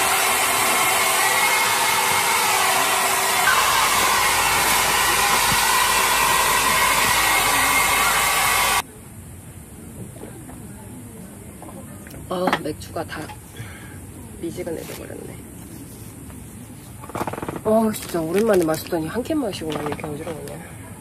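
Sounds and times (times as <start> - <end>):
electric blower motor whine: 0.0 - 8.8
rush of air: 0.0 - 8.8.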